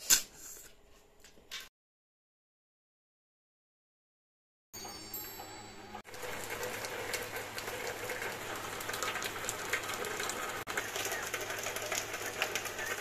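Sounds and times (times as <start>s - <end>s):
rain pattering on leaves: 6.2s - 13.0s.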